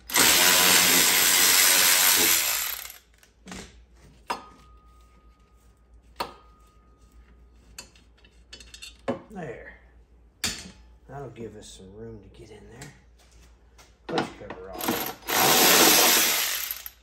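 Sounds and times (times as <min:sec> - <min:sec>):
power tool running: 0:00.0 - 0:03.0, 0:14.8 - 0:17.0.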